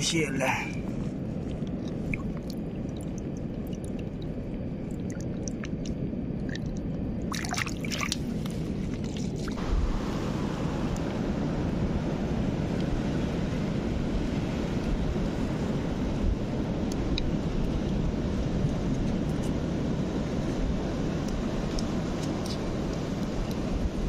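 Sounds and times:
low rush of water: 0.0 - 23.9
water trickles and clicks: 1.5 - 8.2.

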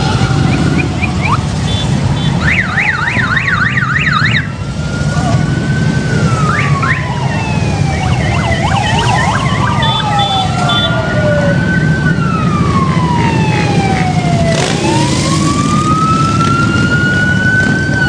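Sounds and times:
motorcycle engines rumbling: 0.0 - 18.0
siren wails: 0.0 - 18.0
siren yelp: 0.0 - 18.0.

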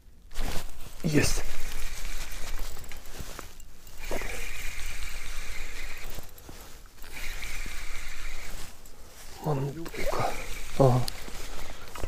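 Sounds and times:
fishing reel whirring: 1.1 - 6.4, 7.0 - 8.9, 9.8 - 12.0.

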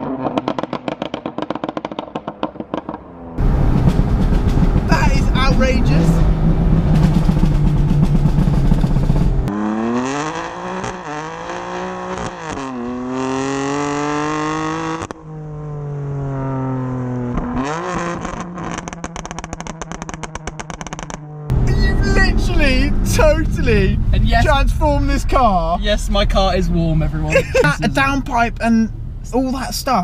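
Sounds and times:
exhaust pops and crackles: 0.0 - 9.5, 17.3 - 30.0
car engine revving: 0.0 - 30.0.

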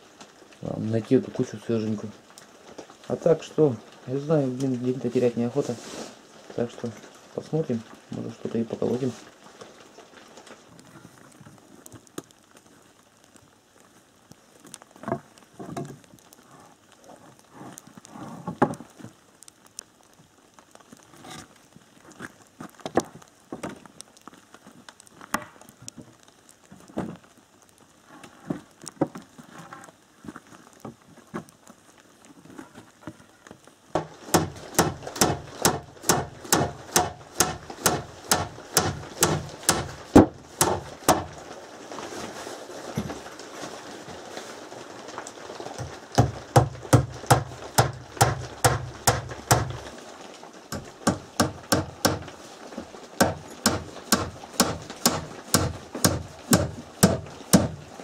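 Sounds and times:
hammer nailing wooden boards: 34.0 - 41.4, 46.2 - 49.9, 50.8 - 52.3, 53.2 - 57.8.

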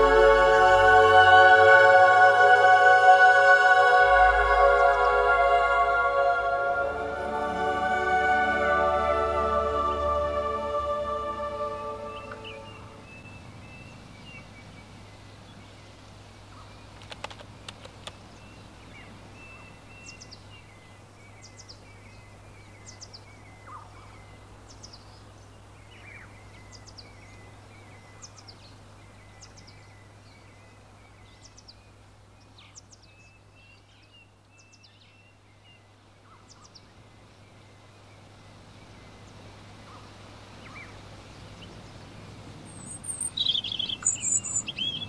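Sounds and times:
steady low hum: 0.0 - 13.1
birds twittering: 11.8 - 15.6, 38.1 - 45.0
soft clicks: 17.0 - 18.2.

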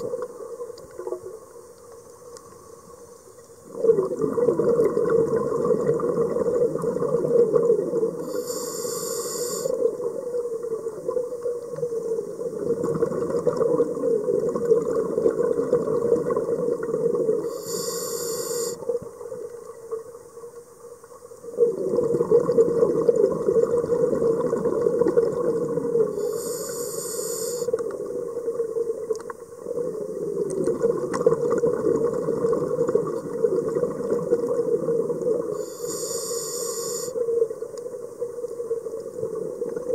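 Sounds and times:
exhaled bubbles rumbling underwater: 0.0 - 1.9, 3.6 - 8.5, 9.5 - 17.7, 18.6 - 26.6, 27.6 - 36.1, 36.8 - 39.9
short high hiss: 8.2 - 9.7, 17.5 - 18.8, 26.2 - 27.8, 35.6 - 37.2.

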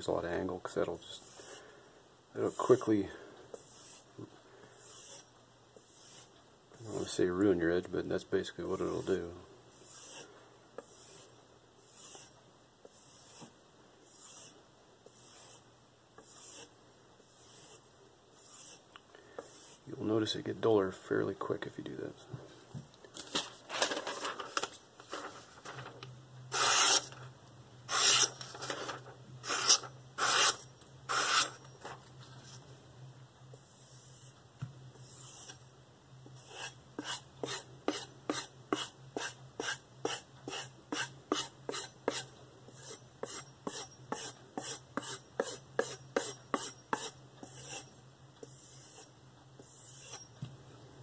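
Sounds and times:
knife slicing paper: 26.5 - 27.2, 27.9 - 31.6.

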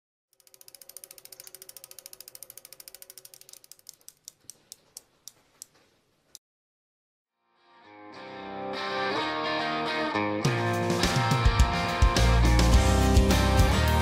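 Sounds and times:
bicycle freewheel hub clicking: 0.3 - 5.4.

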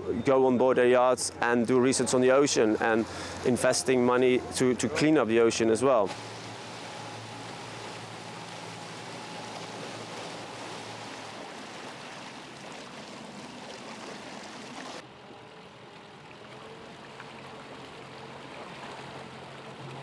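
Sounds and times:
water and boat noise rushing: 0.0 - 20.0
low hum: 6.1 - 12.7.

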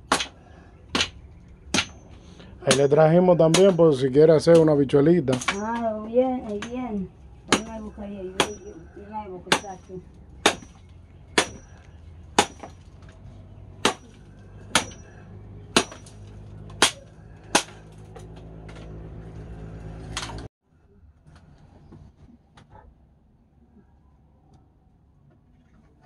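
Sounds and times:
metal blade chopping: 0.1 - 2.0, 2.7 - 5.8, 8.4 - 8.8, 9.5 - 11.8, 12.4 - 12.8, 13.8 - 17.9
woman's voice: 5.5 - 10.1.

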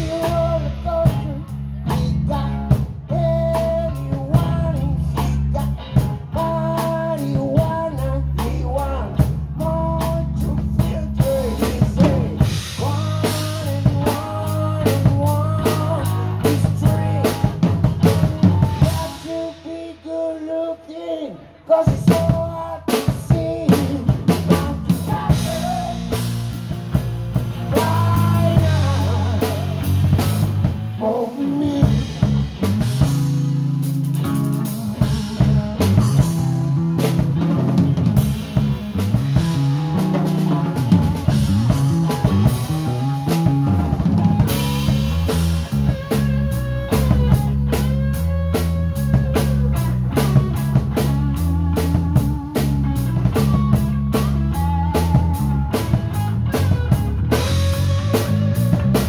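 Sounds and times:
drum kit: 0.0 - 20.5, 21.8 - 59.0
bass guitar: 0.0 - 59.0
electric guitar bending notes: 9.0 - 19.8, 23.2 - 59.0.

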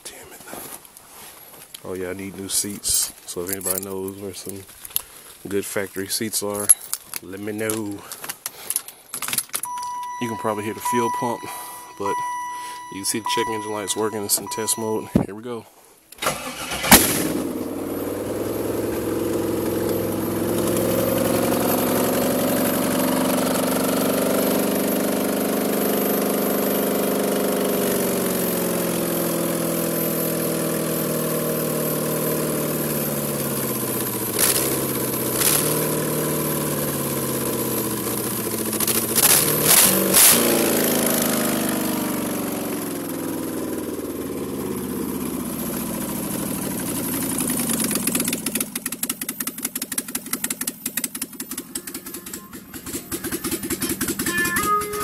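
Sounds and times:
loud engine running: 9.7 - 15.2, 16.2 - 55.0
engine starting with a crack: 16.1 - 17.5.

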